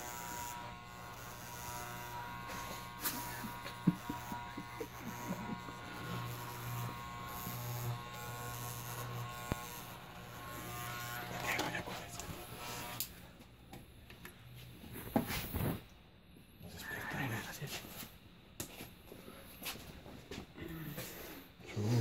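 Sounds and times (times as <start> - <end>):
electric hair clippers buzzing: 0.0 - 13.3.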